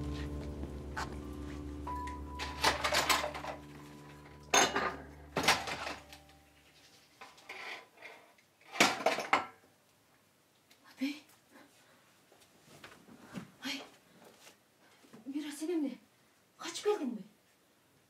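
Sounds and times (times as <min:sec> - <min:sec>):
low music drone: 0:00.0 - 0:06.7
dishes and cutlery clattering: 0:02.4 - 0:03.7, 0:04.4 - 0:06.2, 0:08.7 - 0:09.6.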